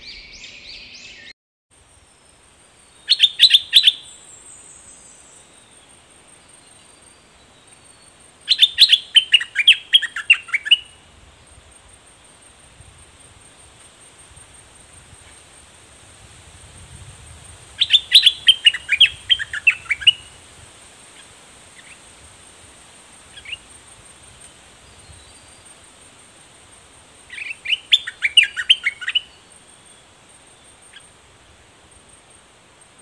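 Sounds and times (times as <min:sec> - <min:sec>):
bird chirping song: 0:00.0 - 0:15.4, 0:17.4 - 0:20.4, 0:23.3 - 0:26.0, 0:27.2 - 0:31.2.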